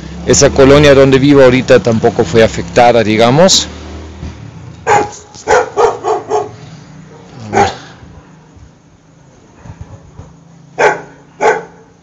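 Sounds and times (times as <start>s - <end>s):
dogs barking: 4.8s - 8.6s, 9.5s - 12.0s.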